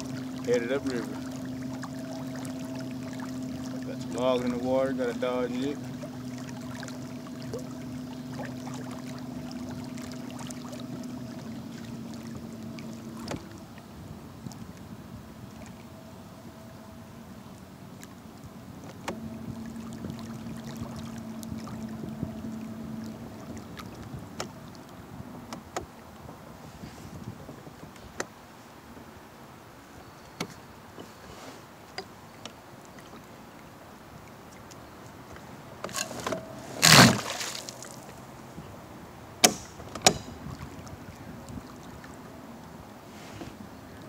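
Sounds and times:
electric trolling motor humming: 0.0 - 26.3.

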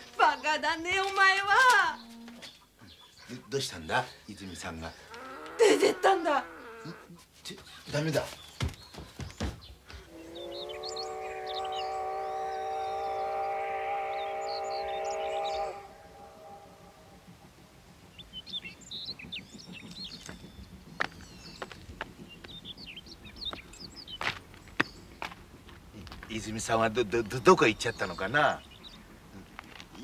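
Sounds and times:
birds chirping: 0.0 - 30.0
train horn blowing: 10.2 - 17.6.

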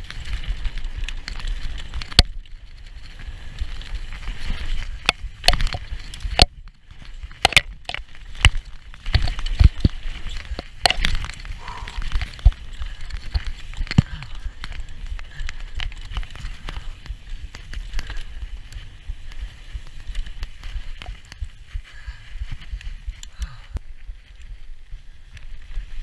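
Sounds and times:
bike knocks and rattles: 0.0 - 18.7
bike tyre rumble on dirt: 0.0 - 26.0.

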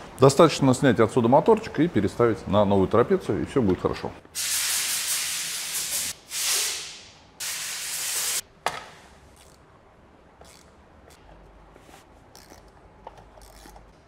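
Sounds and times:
hissing spray: 4.4 - 8.4.

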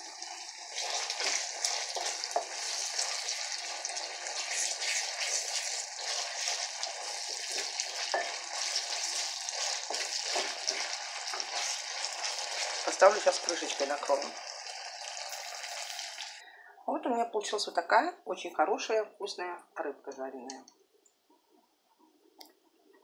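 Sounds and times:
vegetables sizzling in a pan: 0.0 - 16.4
wooden spatula stirring: 0.2 - 13.8.

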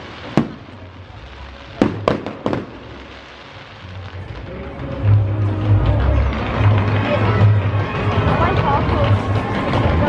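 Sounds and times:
firework shells bursting: 0.0 - 4.0.

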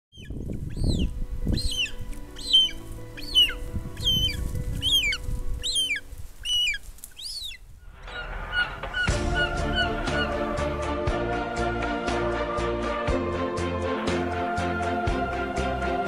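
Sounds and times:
eagles whistled calls: 0.1 - 10.5
music: 0.1 - 16.0
low rumble: 7.6 - 12.3.

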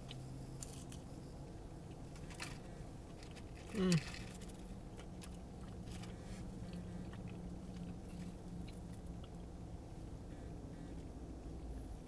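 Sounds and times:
low hum: 0.0 - 12.0
person chewing food: 1.8 - 9.8.

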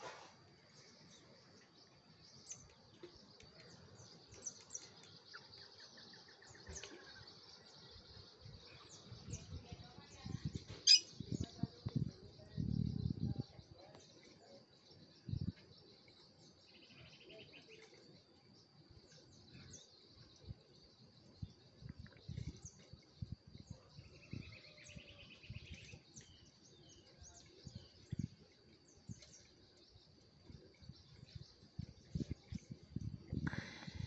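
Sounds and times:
bird chirps: 0.0 - 34.0
rattling bird trill: 10.8 - 11.1.

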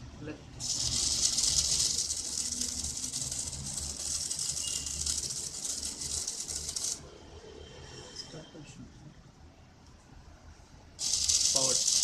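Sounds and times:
small motors whirring: 0.6 - 7.0, 11.0 - 12.0.

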